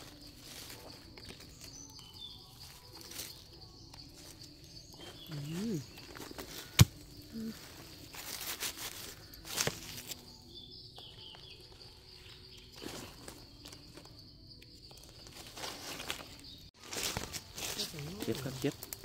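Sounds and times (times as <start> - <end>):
footsteps in dry leaves: 0.0 - 10.4, 11.0 - 14.2, 14.9 - 19.0
high insect buzz: 1.6 - 19.0
twig snapping: 6.0 - 7.1, 8.2 - 10.3.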